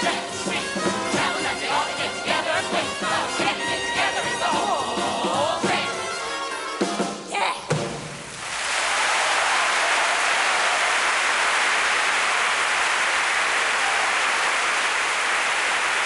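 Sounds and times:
large audience applauding: 8.3 - 16.0.

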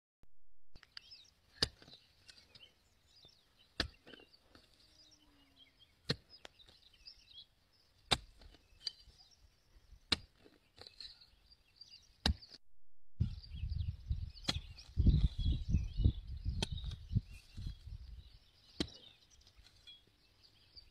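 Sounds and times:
hoe chopping soil: 0.8 - 2.7, 3.3 - 4.9, 6.0 - 7.2, 7.9 - 9.3, 9.9 - 11.2, 12.0 - 12.6, 14.4 - 15.4, 16.5 - 17.7, 18.6 - 20.0
birds chirping: 0.8 - 12.6, 13.2 - 20.9.

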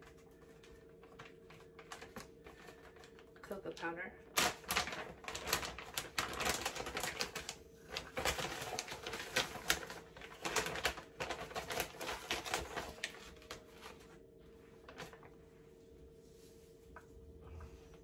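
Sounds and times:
plastic pouch crinkling: 4.3 - 14.1.

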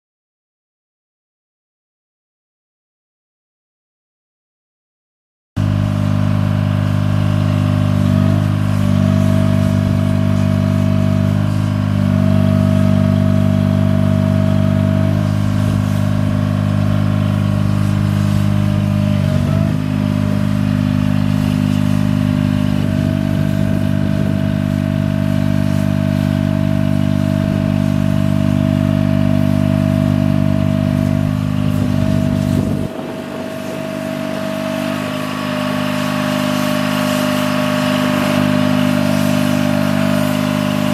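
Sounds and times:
engine running steadily: 5.6 - 40.9
higher steady tone: 29.5 - 36.0.

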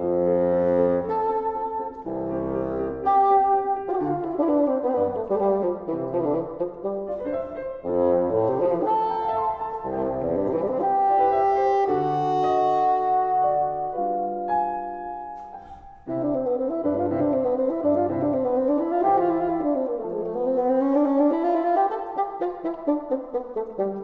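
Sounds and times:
bassoon playing: 0.0 - 24.0
piano accompaniment: 0.0 - 24.0.

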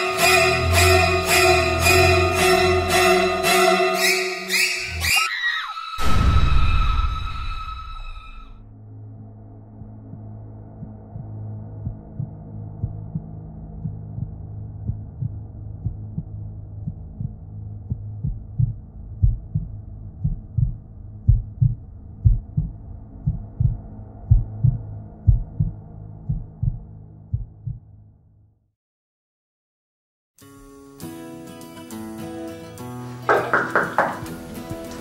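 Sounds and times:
low drone: 6.0 - 28.2
heartbeat thumps: 9.8 - 27.9.

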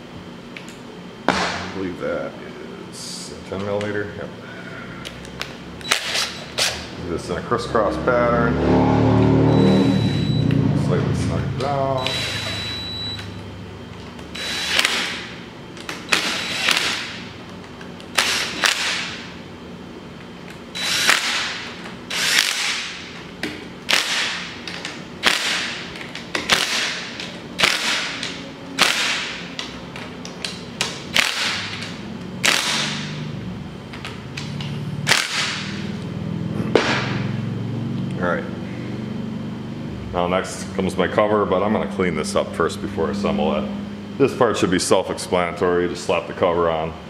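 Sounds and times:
cordless drill bursts: 12.0 - 13.0, 14.3 - 15.2, 16.1 - 17.0, 18.2 - 19.0, 20.8 - 21.5, 22.1 - 22.8.

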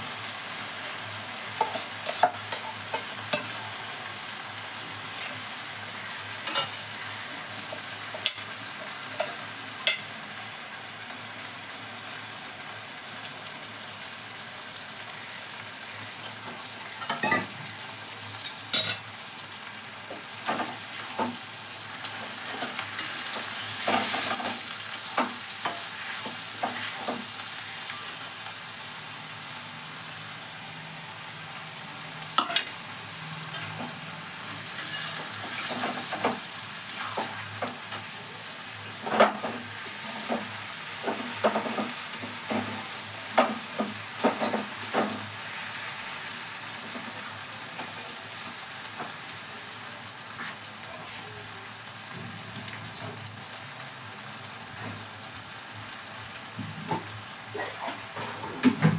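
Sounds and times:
food sizzling in a pan: 0.0 - 58.9
metal spatula scraping pan: 34.7 - 36.2.

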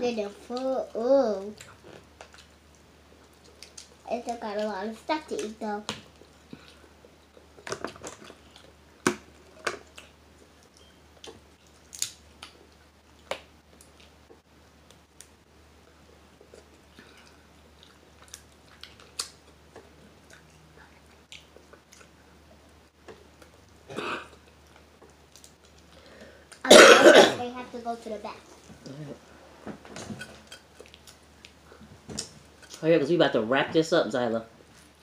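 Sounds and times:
chewing: 1.5 - 8.8, 16.4 - 26.6, 30.2 - 32.8
crab shell clicking and snapping: 11.8 - 12.6.

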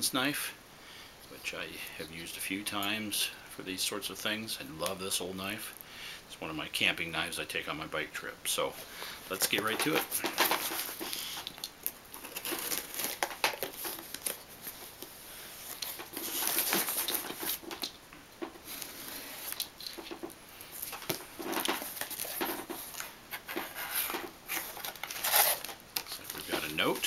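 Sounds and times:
paper rustling: 8.8 - 11.6, 12.2 - 27.0
cardboard scraping: 9.3 - 11.4, 12.2 - 14.8, 15.6 - 17.8, 18.6 - 27.0
tape tearing: 9.3 - 18.0, 20.8 - 27.0.

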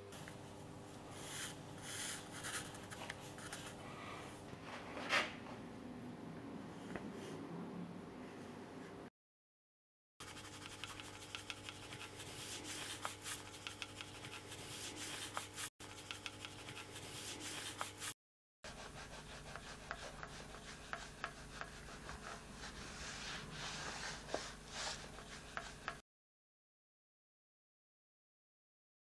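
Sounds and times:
pencil scratching on paper: 1.1 - 3.8, 10.2 - 26.0.

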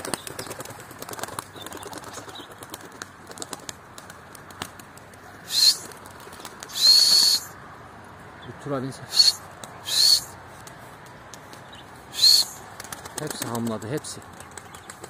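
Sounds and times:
faint wing clicks: 0.0 - 7.3, 9.5 - 9.8, 10.5 - 15.0
pigeon wings flapping: 0.0 - 7.4, 12.2 - 15.0
short rising whistle: 6.7 - 7.5.

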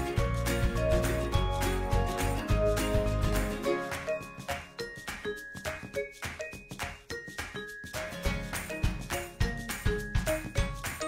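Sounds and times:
deep bass beat: 0.1 - 3.6.

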